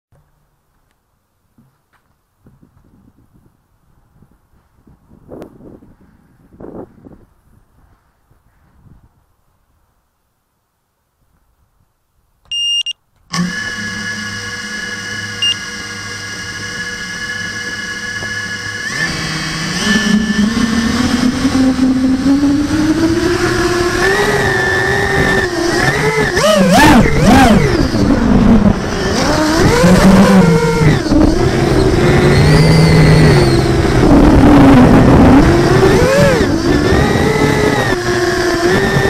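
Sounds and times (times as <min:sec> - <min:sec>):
drone motors whining: 0:13.3 - 0:39.0.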